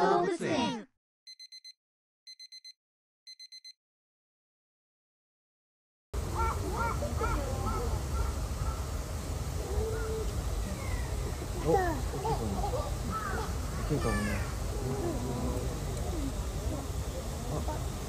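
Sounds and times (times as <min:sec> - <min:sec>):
crows cawing: 0:06.3 - 0:08.9.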